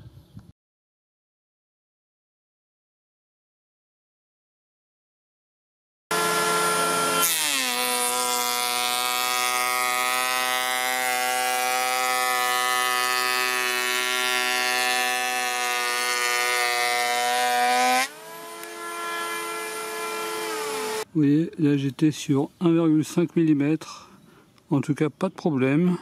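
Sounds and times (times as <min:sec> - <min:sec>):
electric planer motor whine: 0:06.1 - 0:21.0.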